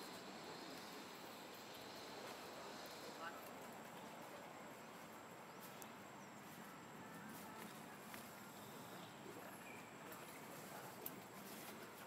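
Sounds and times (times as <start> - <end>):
outdoor background hiss: 0.0 - 12.0.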